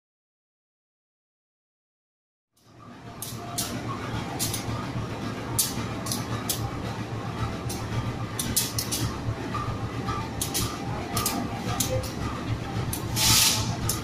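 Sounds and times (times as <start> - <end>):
short sharp high hisses: 13.2 - 13.7.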